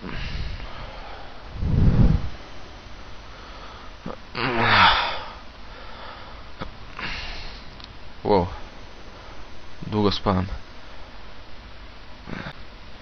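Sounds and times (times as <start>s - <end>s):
man groaning: 4.1s - 5.4s.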